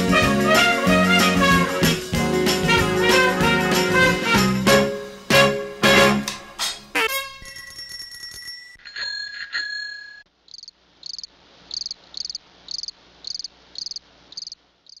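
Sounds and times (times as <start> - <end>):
bicycle bell ringing: 7.4 - 10.3
cricket chirping: 10.5 - 15.0.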